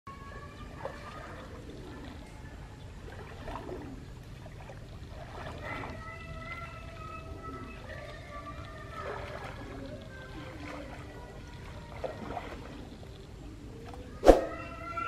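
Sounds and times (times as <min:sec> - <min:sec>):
hands splashing in shallow water: 0:03.1 - 0:05.9, 0:09.0 - 0:12.9.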